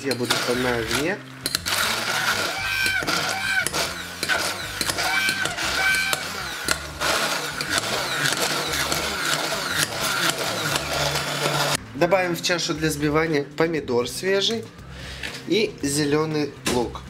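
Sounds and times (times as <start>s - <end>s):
immersion blender whining: 0.0s - 11.8s.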